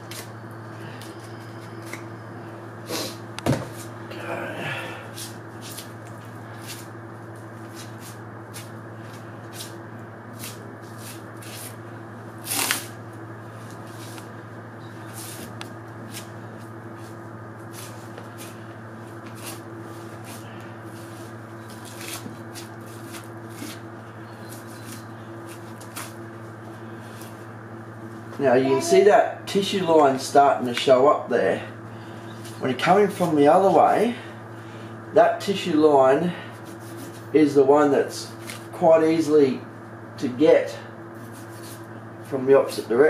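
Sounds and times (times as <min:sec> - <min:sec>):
refrigeration hum: 0:00.0 - 0:43.0
knife cutting and tearing hide: 0:12.4 - 0:12.9, 0:21.6 - 0:23.8
skin being peeled away: 0:12.4 - 0:12.9.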